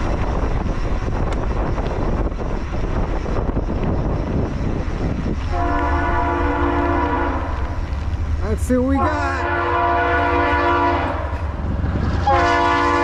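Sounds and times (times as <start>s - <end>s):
car road and wind noise: 0.0s - 13.0s
locomotive air horn chord: 5.5s - 7.6s, 9.0s - 11.4s, 12.2s - 13.0s.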